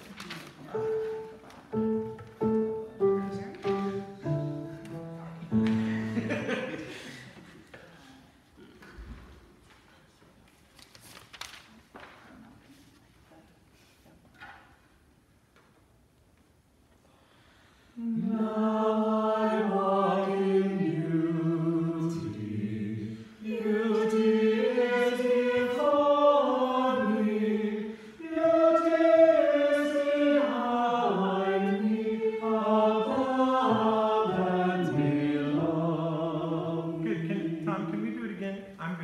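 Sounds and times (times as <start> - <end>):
choir singing unaccompanied: 18.0 - 38.1.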